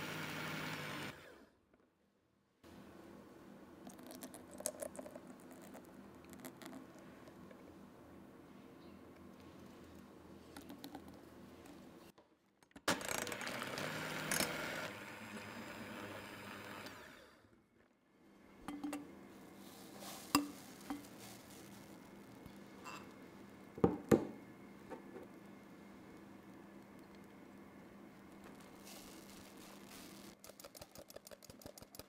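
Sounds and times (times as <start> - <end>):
electric hand mixer whisking: 0.0 - 1.4, 12.9 - 17.4.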